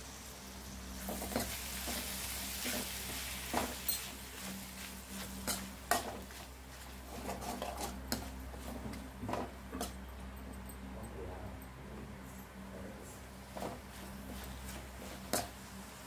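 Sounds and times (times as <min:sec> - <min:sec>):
vegetables sizzling in oil: 0:00.0 - 0:09.6, 0:13.4 - 0:16.0.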